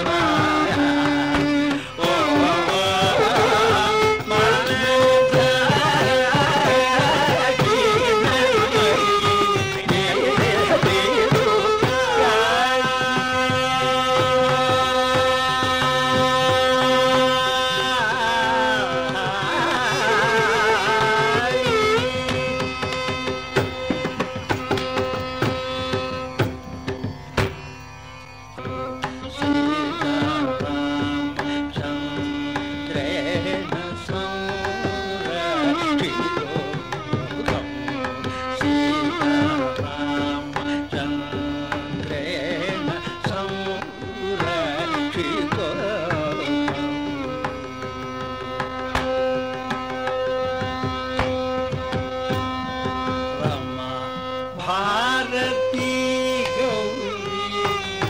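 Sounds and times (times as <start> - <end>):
person singing: 0.0 - 23.4, 29.2 - 58.0
violin melody: 0.0 - 58.0.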